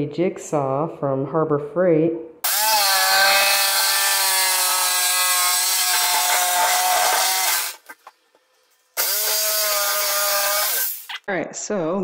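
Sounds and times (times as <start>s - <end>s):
jigsaw cutting wood: 2.4s - 8.2s, 8.9s - 11.2s.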